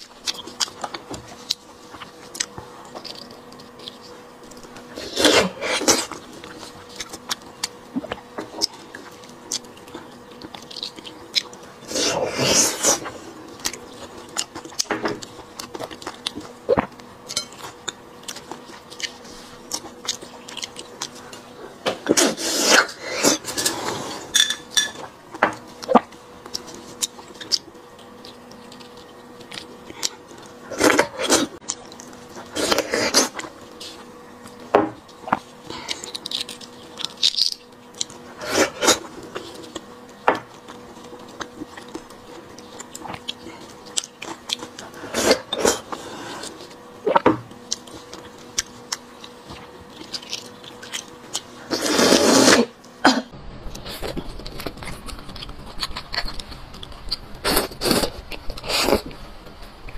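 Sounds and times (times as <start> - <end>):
chewing and mouth noises: 0.0 - 23.8, 24.9 - 52.7, 53.7 - 59.2
slurping and sucking: 11.8 - 13.3, 22.1 - 24.3, 32.4 - 33.5, 51.6 - 52.7.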